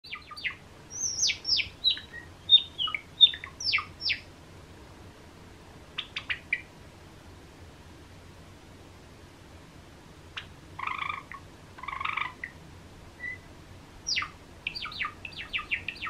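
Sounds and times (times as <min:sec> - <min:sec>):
sparrow chirping: 0:00.0 - 0:04.3, 0:06.0 - 0:06.7, 0:10.4 - 0:12.6, 0:13.2 - 0:16.0.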